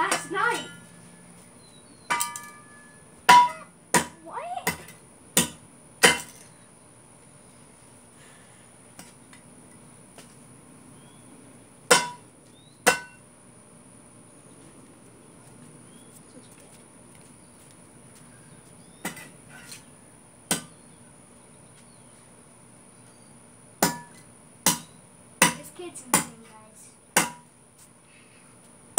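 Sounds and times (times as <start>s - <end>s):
metal shovel clanking: 2.1s - 3.7s.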